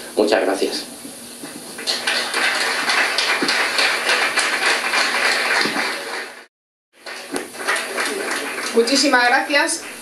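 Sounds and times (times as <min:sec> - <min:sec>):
audience applauding: 0:01.8 - 0:10.0.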